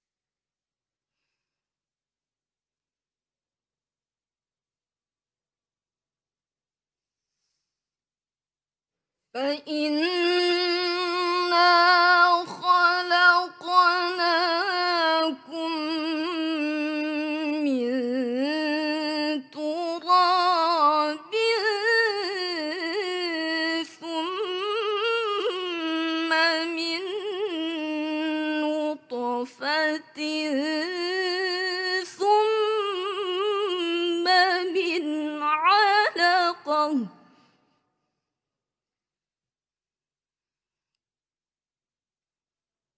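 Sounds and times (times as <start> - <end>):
girl reciting melodically: 9.4 - 37.1.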